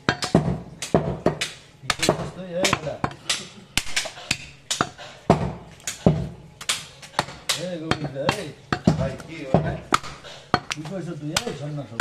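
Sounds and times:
cleaver chopping meat and bone: 0.0s - 12.0s.

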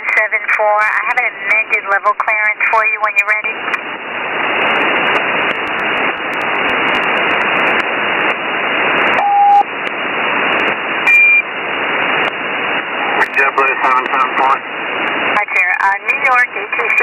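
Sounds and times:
radio static hiss: 0.0s - 17.0s
short steady beep: 9.2s - 9.6s, 11.1s - 11.5s.

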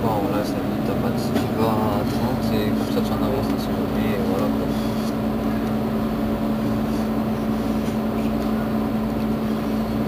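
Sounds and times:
bus engine idling: 0.0s - 10.0s.

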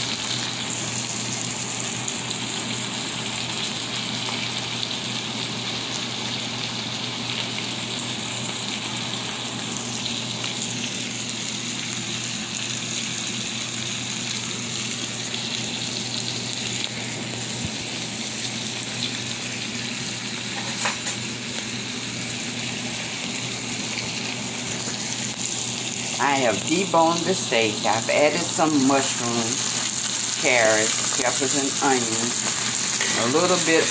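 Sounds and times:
meat sizzling in a skillet: 0.0s - 33.9s
low steady hum: 21.5s - 33.9s.

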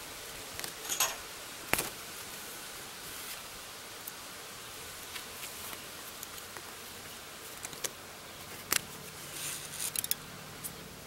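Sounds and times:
steady background hiss: 0.0s - 11.0s.

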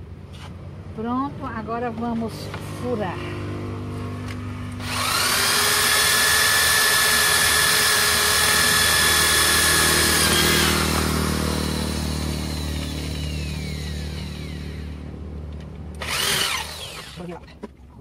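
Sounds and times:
electric drill boring into wood: 4.8s - 15.1s, 15.9s - 17.2s.

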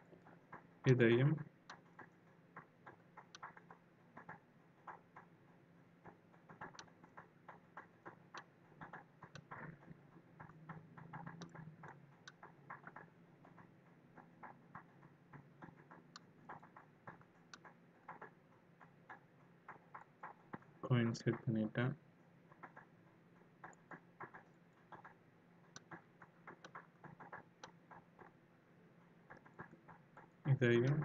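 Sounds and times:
computer mouse clicks: 6.0s - 13.7s, 23.6s - 28.4s.

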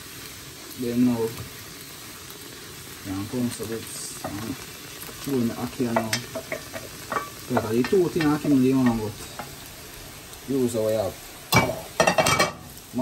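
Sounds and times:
food sizzling in oil: 0.0s - 13.0s
spatula scraping a pot: 5.8s - 9.6s
spatula knocking against a pot: 5.9s - 9.5s.

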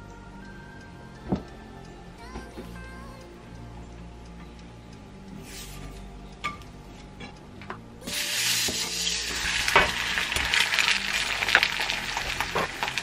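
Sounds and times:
eggs sizzling in a pan: 8.1s - 13.0s.

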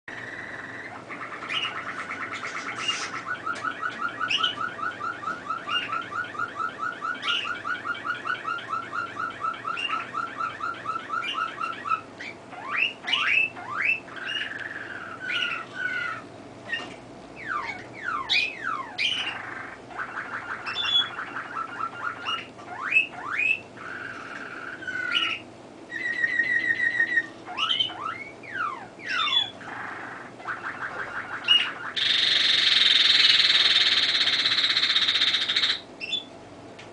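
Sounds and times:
canary singing trills: 0.1s - 36.5s.

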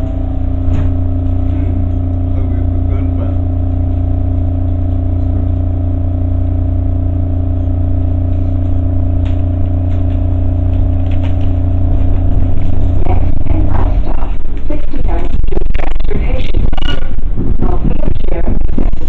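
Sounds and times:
steady electrical hum: 0.0s - 19.0s
train clicks and clatter: 9.2s - 15.4s.

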